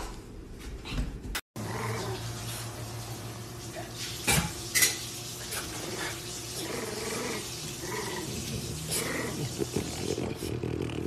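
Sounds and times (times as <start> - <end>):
dogs growling: 1.6 - 2.4, 5.5 - 11.0.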